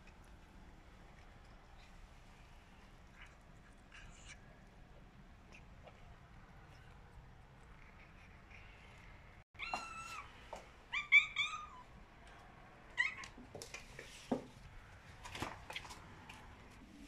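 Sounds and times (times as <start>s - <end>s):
cats meowing: 8.0s - 11.9s, 12.9s - 13.4s.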